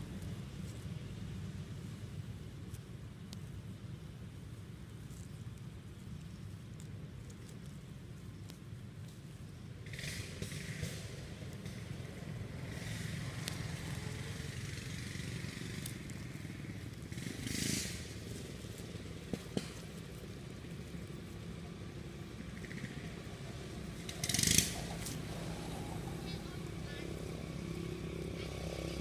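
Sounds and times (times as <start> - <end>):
low motor rumble: 0.0 - 29.0
monkeys rustling in dry leaves: 0.0 - 29.0.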